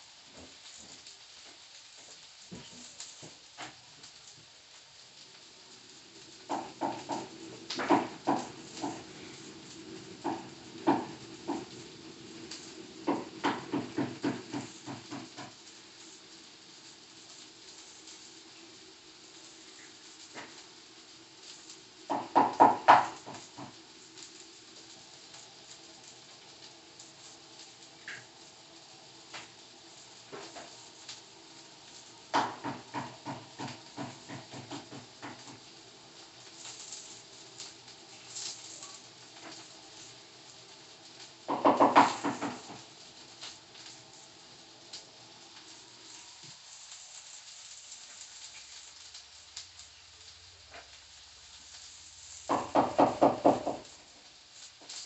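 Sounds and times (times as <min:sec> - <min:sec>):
rapid knocks: 0:06.5 - 0:09.1, 0:10.2 - 0:11.8, 0:13.0 - 0:15.6, 0:22.1 - 0:23.8, 0:32.3 - 0:35.6, 0:41.5 - 0:42.8, 0:52.5 - 0:53.8.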